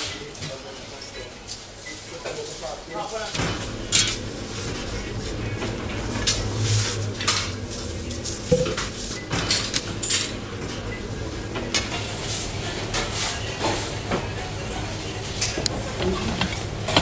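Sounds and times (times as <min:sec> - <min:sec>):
steady machine hum: 0:03.5 - 0:17.0
utensils and pans clattering: 0:12.0 - 0:17.0.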